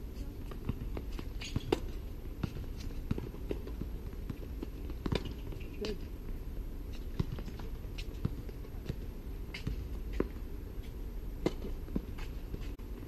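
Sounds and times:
tennis ball bouncing on court: 0.5s - 6.0s, 7.1s - 10.4s.

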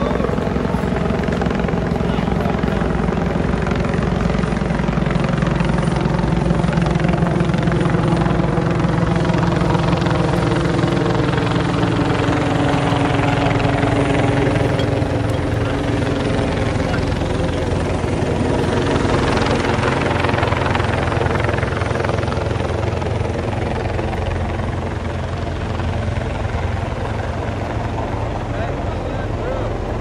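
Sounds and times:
helicopter engine hum: 0.0s - 30.0s
helicopter rotor chop: 0.0s - 30.0s.

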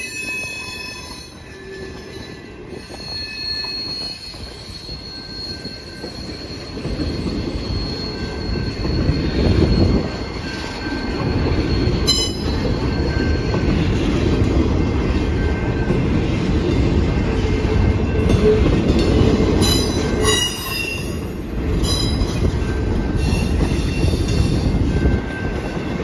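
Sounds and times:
high wheel squeal: 0.0s - 13.7s, 19.6s - 22.5s
steel wheels rumbling on rail: 0.0s - 26.0s.

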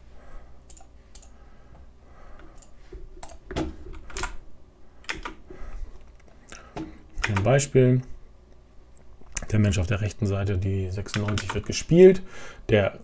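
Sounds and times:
computer keyboard clicks: 0.7s - 1.3s, 2.6s - 4.4s, 5.1s - 5.4s, 7.2s - 7.5s, 11.1s - 11.6s.

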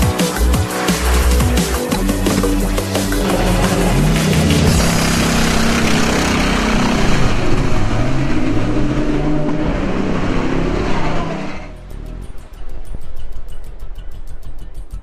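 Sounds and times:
race car engine revving: 2.2s - 12.7s.

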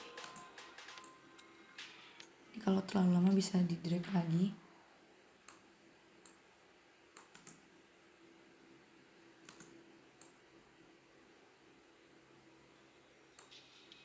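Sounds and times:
faint computer mouse clicks: 5.4s - 5.6s, 7.2s - 7.6s, 9.4s - 10.4s.

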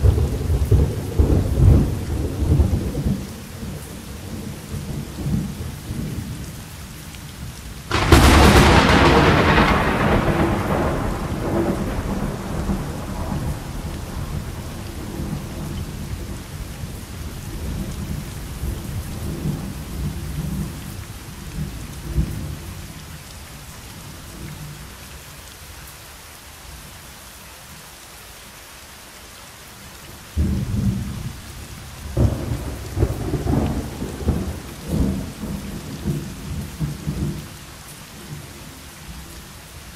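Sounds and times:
low rumbling of thunder: 0.0s - 6.5s, 7.9s - 23.1s, 30.3s - 39.3s
rain hissing: 0.0s - 39.9s
thunderclap: 7.9s - 16.4s, 32.1s - 37.4s.

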